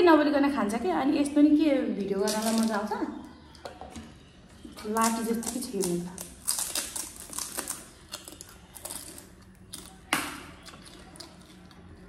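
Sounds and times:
crisp shells crunching when chewed: 2.2 - 2.9, 4.6 - 12.0.

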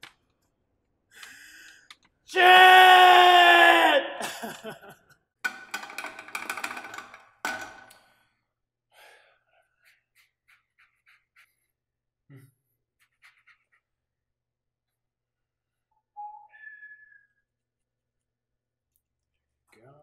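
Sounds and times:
sponge rubbing on skin: 9.6 - 11.8, 12.9 - 14.0.

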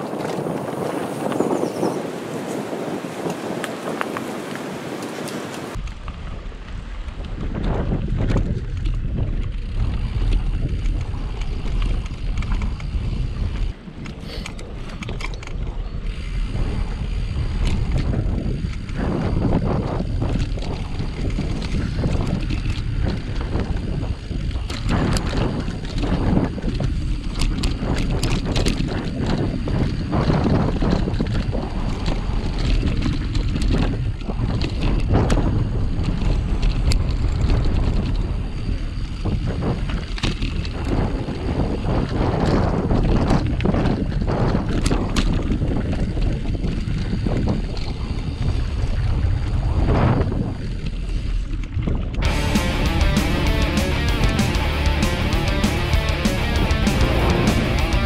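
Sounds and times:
wind buffeting microphone: 0.0 - 55.0
bicycle rattling and knocking: 6.7 - 48.7.

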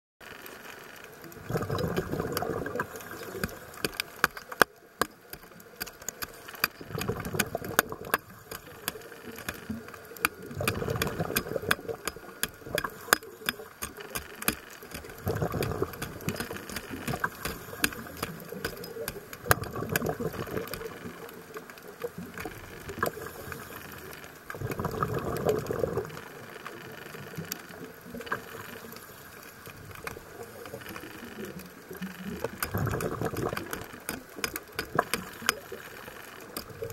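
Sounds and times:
exhaled bubbles underwater: 1.3 - 4.0, 6.7 - 14.0, 14.8 - 21.4, 22.0 - 26.4, 30.3 - 35.8
sharp clicks: 1.7 - 24.8, 29.7 - 36.9.

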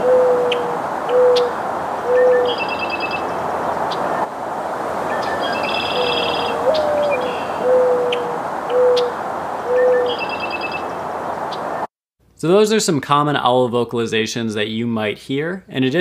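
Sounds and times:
dove cooing: 0.0 - 4.0, 5.1 - 10.8
bird trilling and chipping: 0.0 - 4.3, 5.1 - 11.8.

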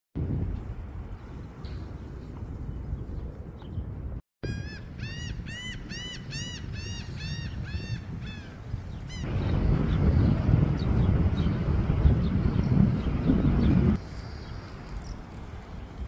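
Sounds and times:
low rumble of wind or surf: 0.2 - 16.0
gull calling: 4.4 - 9.4.

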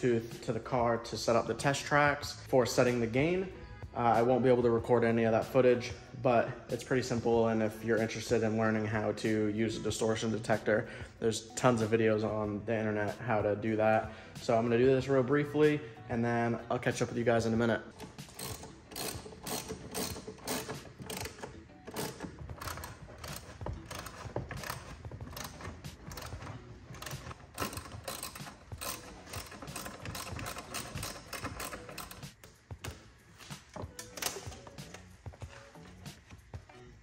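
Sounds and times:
hand tools clicking and rattling: 17.9 - 36.6.

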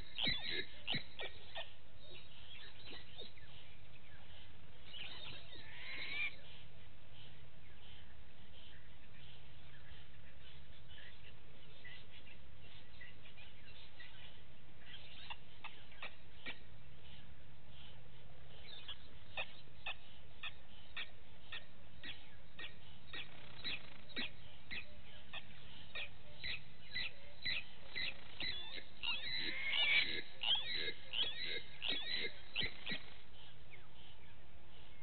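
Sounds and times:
high chirping calls: 0.0 - 3.6, 18.6 - 35.0
faint low hum: 0.0 - 35.0.

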